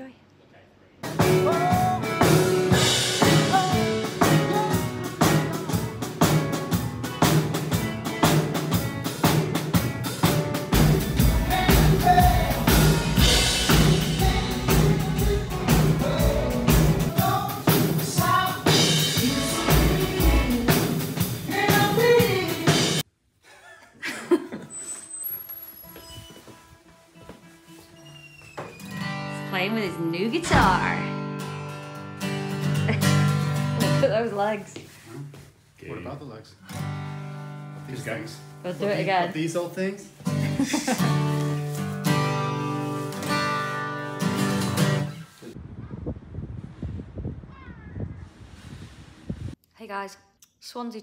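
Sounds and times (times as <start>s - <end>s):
bass guitar: 1.0s - 23.0s, 29.3s - 34.2s
drum kit beat: 1.0s - 23.0s, 29.6s - 34.4s
guitar: 1.0s - 23.0s, 24.9s - 45.6s
person singing: 1.2s - 5.9s, 11.0s - 23.0s.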